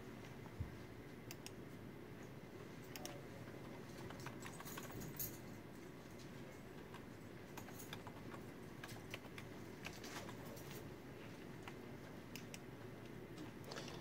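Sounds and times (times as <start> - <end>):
low room hum: 0.0 - 14.0
computer keyboard typing: 3.0 - 5.2, 6.8 - 10.6.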